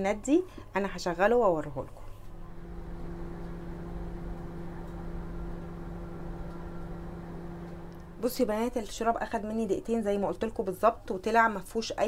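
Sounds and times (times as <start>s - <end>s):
microwave oven humming: 2.2s - 9.0s.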